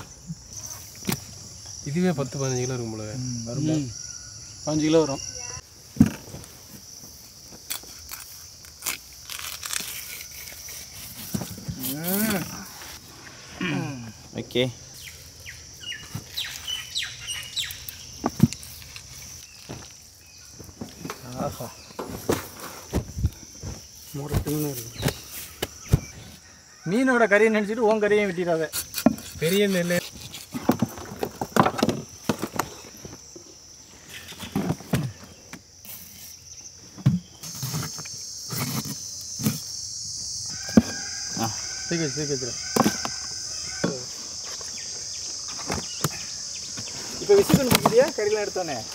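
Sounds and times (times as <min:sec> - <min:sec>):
high insect drone: 0:00.0 - 0:48.9
birds chirping: 0:12.3 - 0:26.4
dull thump: 0:22.0 - 0:26.3.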